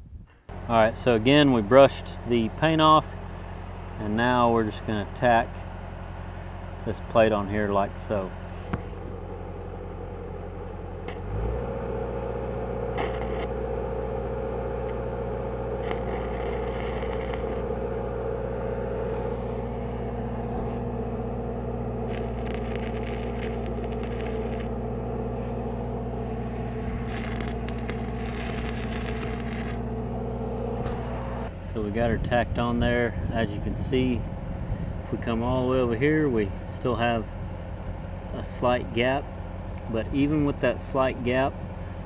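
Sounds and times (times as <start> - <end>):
welding machine hum: 0.5 - 31.5
welding arc crackling: 8.8 - 31.5.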